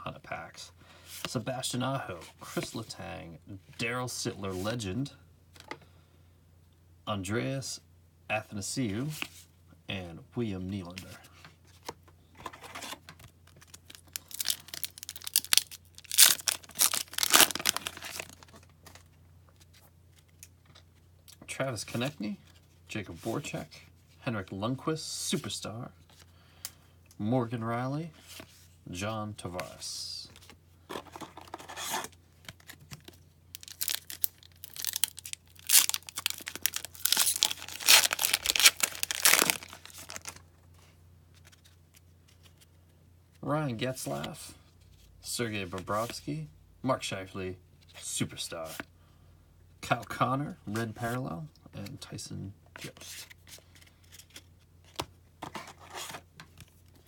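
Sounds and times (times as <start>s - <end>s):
plastic wrapper tearing and crinkling: 13.6s - 18.5s, 32.6s - 40.4s.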